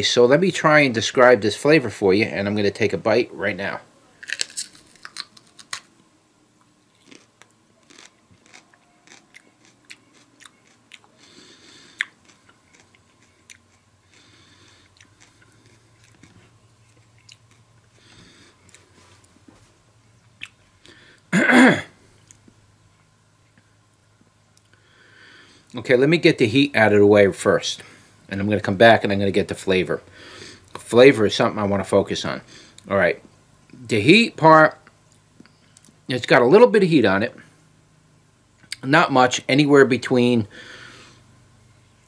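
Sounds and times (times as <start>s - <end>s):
person chewing crunchy pepper: 4.2s - 5.9s, 6.9s - 19.4s
short loud throat sound: 21.3s - 22.0s.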